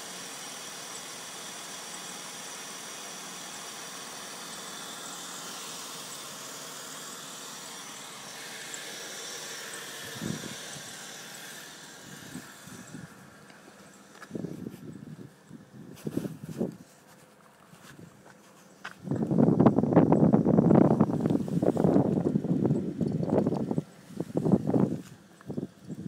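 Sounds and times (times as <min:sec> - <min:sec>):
car engine idling: 0:00.0 - 0:15.9.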